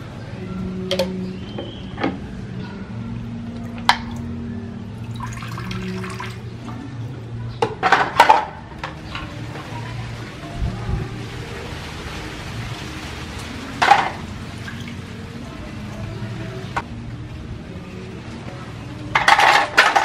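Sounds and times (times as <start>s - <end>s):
water sloshing in a plastic basin: 8.9s - 16.8s.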